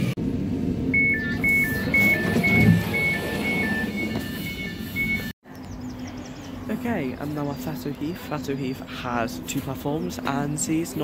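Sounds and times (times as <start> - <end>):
low train rumble: 0.0 - 11.0
two-tone door warning beeps: 1.0 - 5.4.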